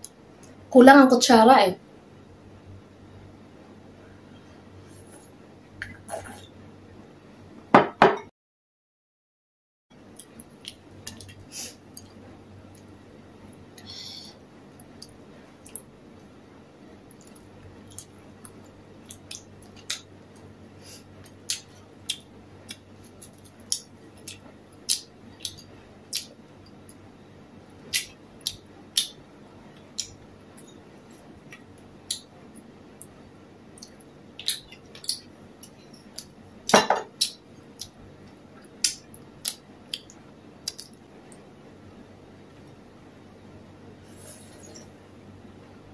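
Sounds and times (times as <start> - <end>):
chewing clicks and smacks: 21.3 - 27.0, 33.0 - 36.4, 37.2 - 41.4
dishes clattering: 36.7 - 37.1.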